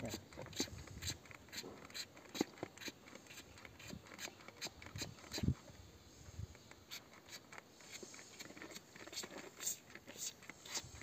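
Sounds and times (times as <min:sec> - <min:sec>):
spray bottle squirts: 0:06.8 - 0:11.0.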